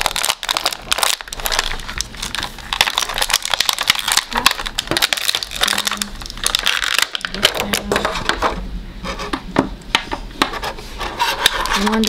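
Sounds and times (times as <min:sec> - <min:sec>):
plastic packaging crinkling: 0:00.0 - 0:08.4.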